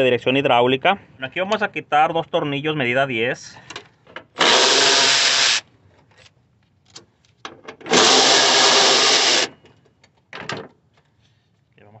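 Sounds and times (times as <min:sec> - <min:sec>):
power ratchet running: 0:04.4 - 0:05.6, 0:07.9 - 0:09.5.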